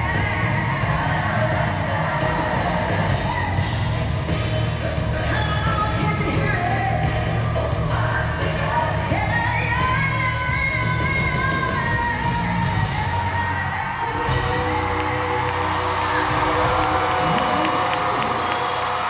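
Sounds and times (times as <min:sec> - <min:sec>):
live band with drums and guitars: 0:00.0 - 0:19.0
woman singing lead: 0:00.0 - 0:19.0
crowd yelling: 0:13.5 - 0:19.0.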